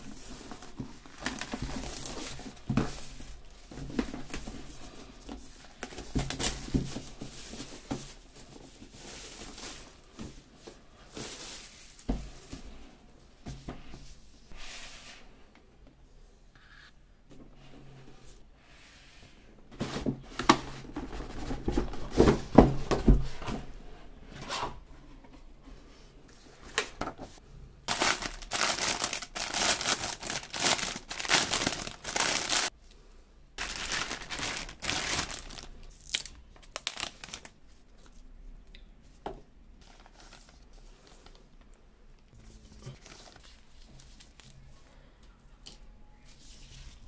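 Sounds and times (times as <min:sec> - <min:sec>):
plastic bags crinkling: 0:00.0 - 0:04.4, 0:27.9 - 0:32.8, 0:33.6 - 0:37.6.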